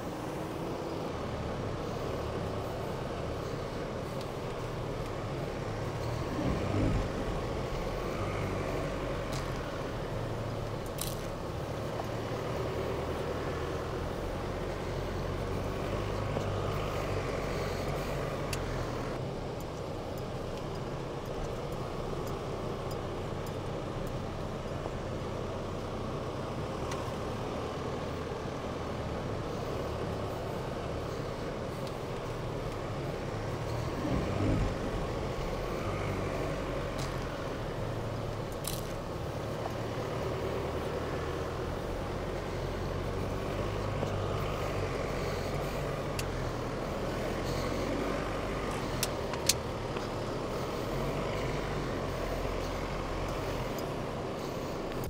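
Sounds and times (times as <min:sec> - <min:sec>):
pickup engine running: 0:00.0 - 0:55.0.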